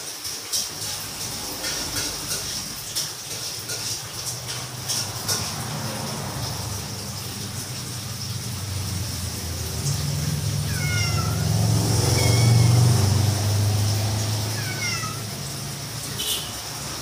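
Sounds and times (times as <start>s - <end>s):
cat meowing: 10.2s - 15.8s.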